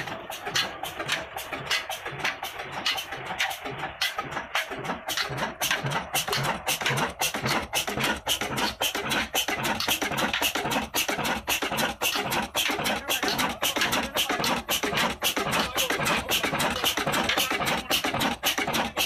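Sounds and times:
stationary diesel engine clattering: 0.0s - 19.0s.

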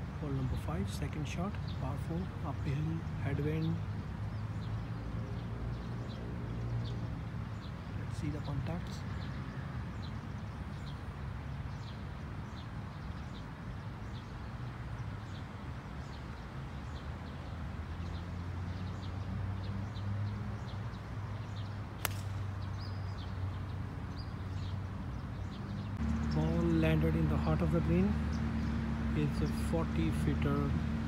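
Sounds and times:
birds chirping: 0.0s - 31.0s
low wind rumble: 0.0s - 31.0s
golf club striking ball: 22.0s - 22.6s.

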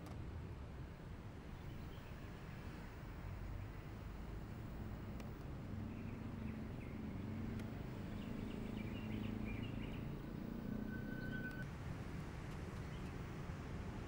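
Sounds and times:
faint bird chirps: 5.9s - 11.7s
high whistle-like tone: 10.6s - 11.7s.

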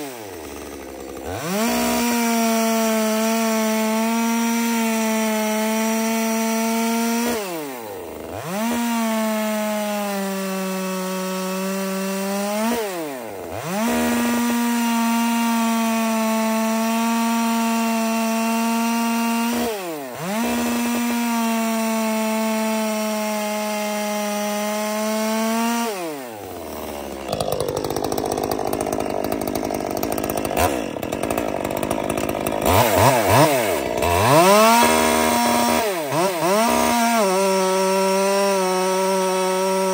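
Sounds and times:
chainsaw cutting wood: 0.0s - 39.9s.

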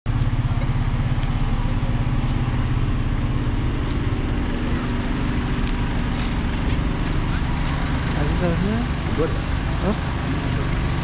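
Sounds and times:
low engine hum: 0.1s - 11.0s.

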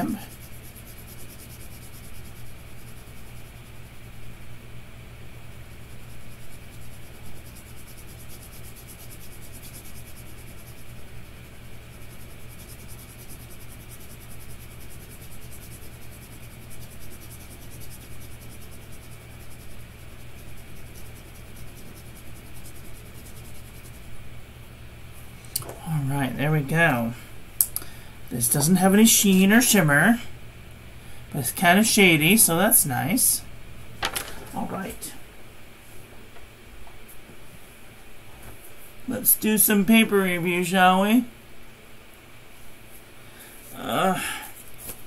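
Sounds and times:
fountain pen scratching on paper: 0.0s - 4.1s, 5.6s - 24.1s
steady low hum: 0.0s - 45.0s.

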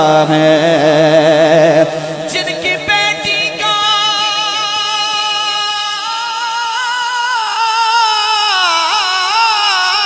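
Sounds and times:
man singing into a microphone: 0.0s - 10.0s.

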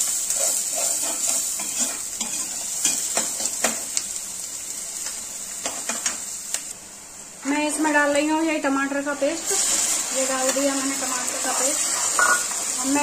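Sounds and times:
onions sizzling in a pan: 0.0s - 13.0s
spatula scraping a pan: 0.3s - 3.5s.

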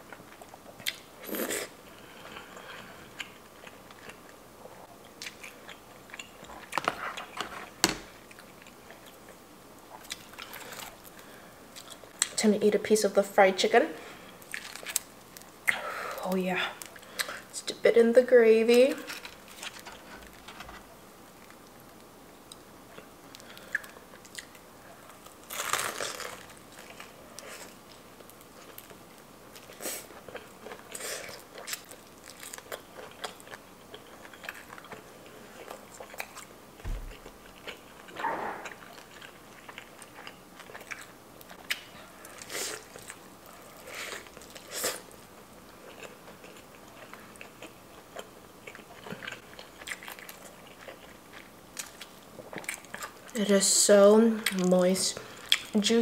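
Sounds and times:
crunching fried chicken skin: 14.4s - 15.8s, 23.3s - 36.5s
wet chewing: 28.6s - 45.2s.

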